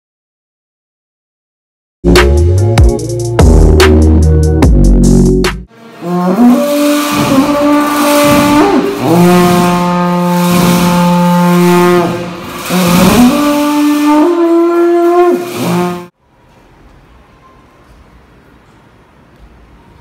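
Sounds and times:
long horns blowing low notes: 5.7s - 16.1s
large drum strokes: 6.0s - 16.1s.

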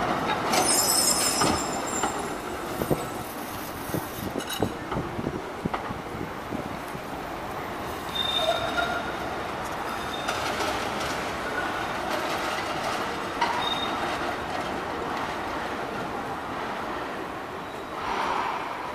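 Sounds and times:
tram wheels squealing: 0.1s - 4.8s, 7.8s - 14.5s, 17.6s - 18.9s
clacks over rail joints: 8.5s - 15.5s.

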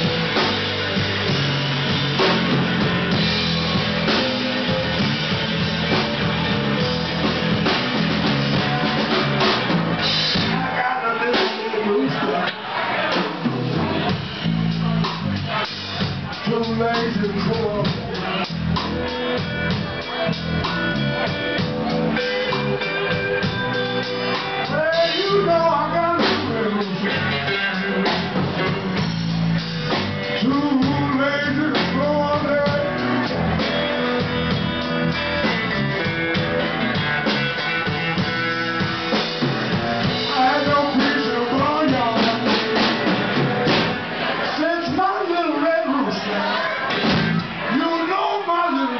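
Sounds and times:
electric guitar: 0.0s - 44.6s
drums: 0.0s - 48.9s
person singing into microphone: 24.6s - 28.8s, 30.3s - 33.4s, 40.1s - 42.7s.

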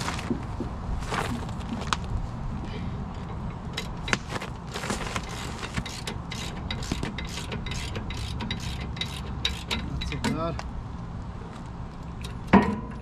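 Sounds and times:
ratchet clicking and scraping: 5.2s - 10.4s.

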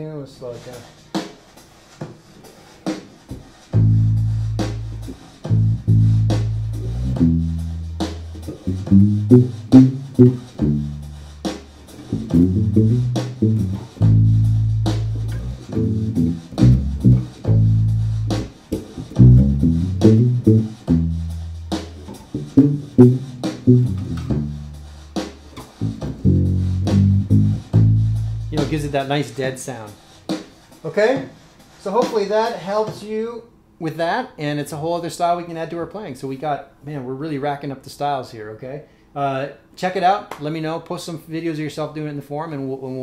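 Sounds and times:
muted electric bass line: 3.8s - 25.1s, 25.7s - 29.0s.

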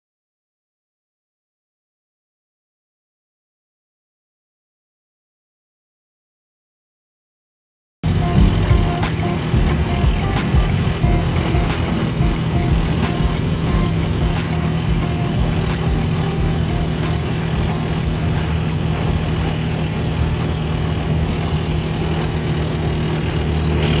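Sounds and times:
road noise: 8.0s - 24.0s
tricycle engine running: 8.0s - 24.0s
wind noise: 8.0s - 24.0s.

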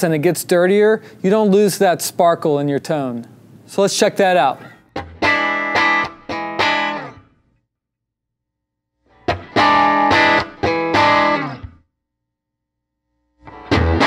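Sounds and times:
electric guitar strumming chords: 5.0s - 7.3s, 9.1s - 11.8s, 13.4s - 14.0s.

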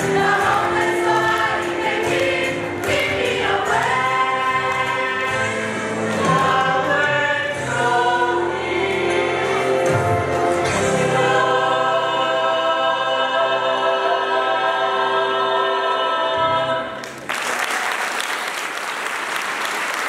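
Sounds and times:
choir holding a chord: 0.0s - 17.0s
audience applause: 17.0s - 20.0s.

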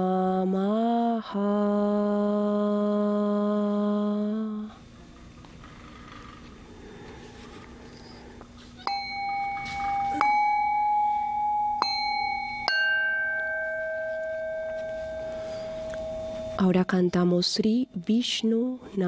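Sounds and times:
faint low hum: 0.0s - 19.0s
singing bowls ringing: 8.8s - 19.0s.

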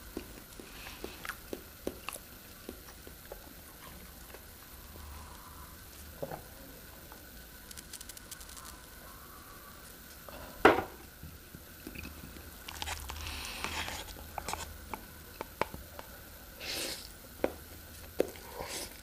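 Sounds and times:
chewing: 0.1s - 4.5s
noodles slurp: 18.3s - 19.0s.

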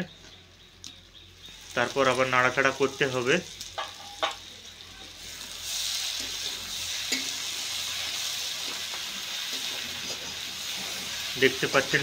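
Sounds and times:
vegetables sizzling in oil: 0.0s - 12.0s
spatula tapping pan: 3.7s - 4.4s.

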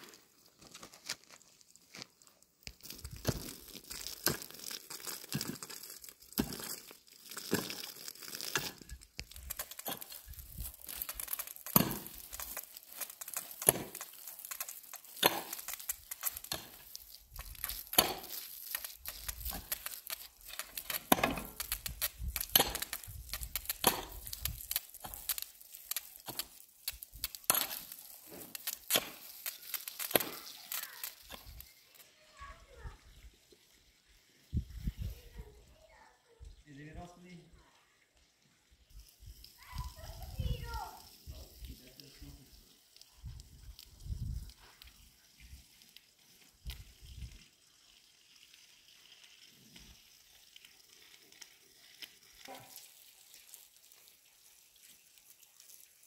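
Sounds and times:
papery crinkling and crackling: 0.0s - 32.1s, 49.0s - 56.0s.

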